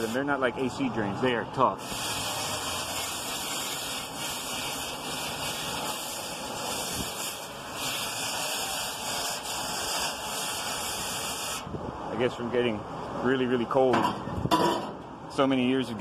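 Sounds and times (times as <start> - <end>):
hose spraying water on metal: 0.0 - 0.4, 1.8 - 11.7.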